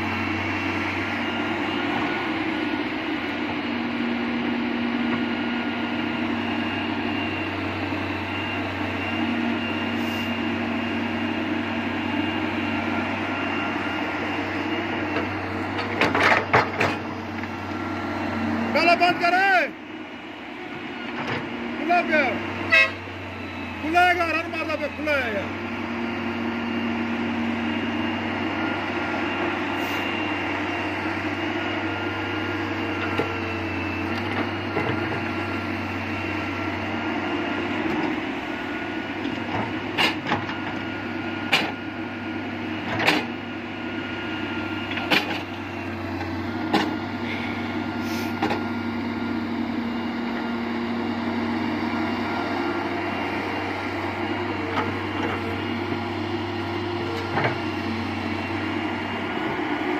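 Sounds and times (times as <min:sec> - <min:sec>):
diesel engines running: 0:00.0 - 0:59.9
excavator digging knocks: 0:15.1 - 0:17.2, 0:34.1 - 0:35.3, 0:39.3 - 0:40.8, 0:41.4 - 0:41.8, 0:42.8 - 0:43.4, 0:44.9 - 0:47.0, 0:48.4 - 0:48.7, 0:57.0 - 0:58.0.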